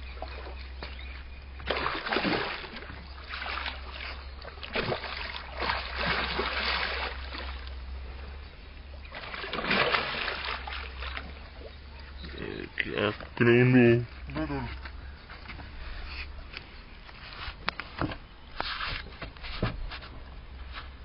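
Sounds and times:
fish thrashing and splashing: 0:01.6 - 0:07.9, 0:09.0 - 0:12.2.

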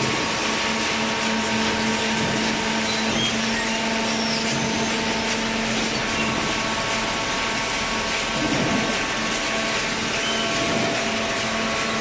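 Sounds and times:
baler motor and pump hum: 0:00.0 - 0:12.0.

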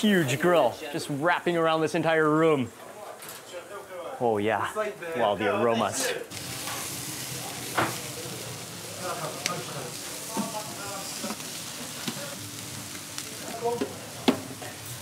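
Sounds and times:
meat sizzling on grill: 0:00.0 - 0:01.9, 0:05.2 - 0:15.0.

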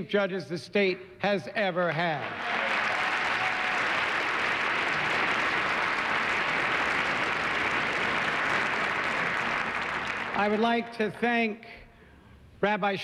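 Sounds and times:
audience applauding: 0:02.2 - 0:10.9.

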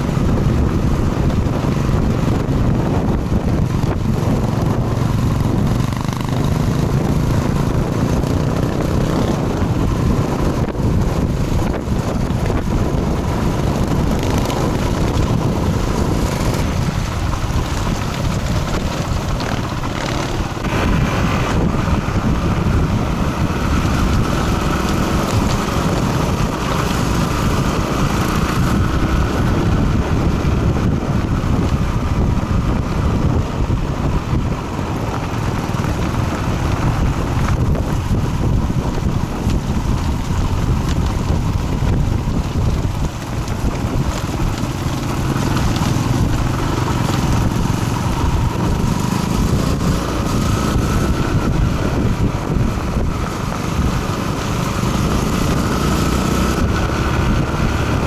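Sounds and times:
motorcycle engine: 0:00.0 - 0:58.0
road noise: 0:00.0 - 0:58.0
wind rushing over microphone: 0:00.0 - 0:58.0.

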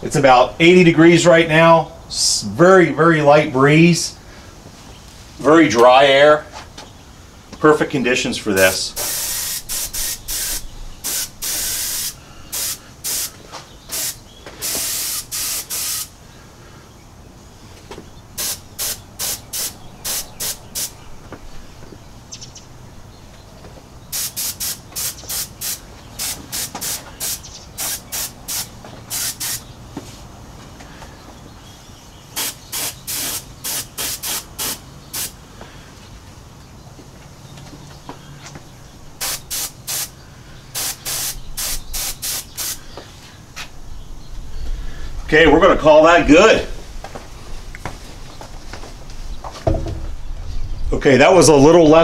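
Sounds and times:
airbrush spraying in hissing bursts: 0:08.6 - 0:16.2, 0:18.4 - 0:21.0, 0:24.1 - 0:29.7, 0:32.4 - 0:35.4, 0:39.2 - 0:42.8.

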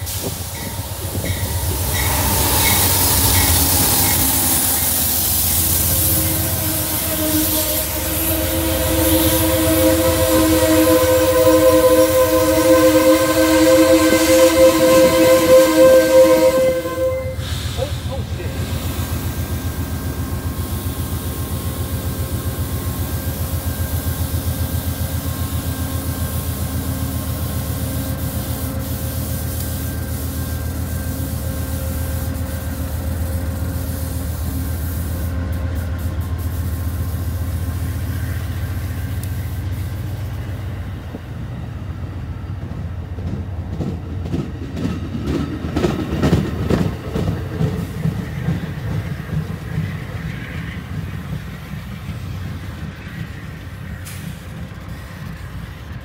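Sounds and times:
train rumbling past: 0:00.0 - 0:56.0.

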